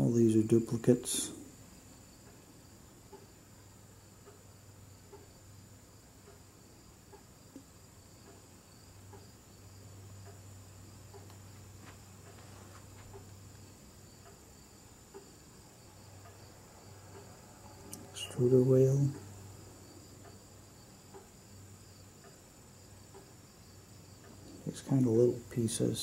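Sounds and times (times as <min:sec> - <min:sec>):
faint high-pitched whine: 0:00.0 - 0:26.0
faint ticks: 0:02.2 - 0:03.4, 0:04.1 - 0:05.6, 0:06.2 - 0:25.6.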